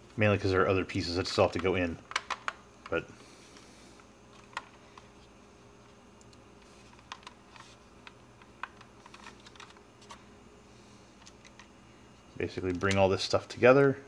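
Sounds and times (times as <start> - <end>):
plastic parts clicking and tapping: 1.6 - 3.0, 6.2 - 10.2.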